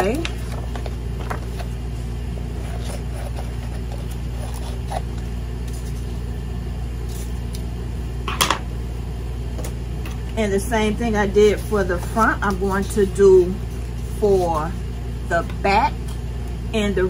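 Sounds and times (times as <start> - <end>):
low background hum: 0.0 - 17.0
paper rustling: 0.1 - 6.2, 11.5 - 14.7.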